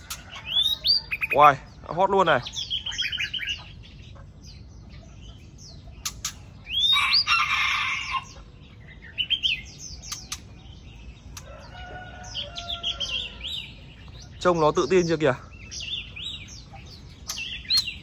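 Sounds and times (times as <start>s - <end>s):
sharp bird clicks: 0.0s - 1.3s, 5.9s - 7.0s, 9.4s - 10.7s, 11.3s - 11.8s, 16.8s - 18.0s
bird chirping song: 0.0s - 18.0s
rooster crowing: 6.8s - 8.4s, 11.4s - 13.7s.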